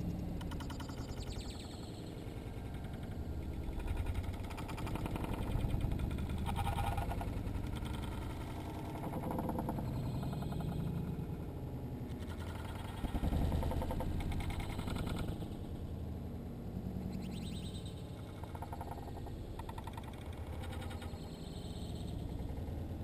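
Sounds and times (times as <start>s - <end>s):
slowed-down birds as deep rumble: 0.0s - 23.0s.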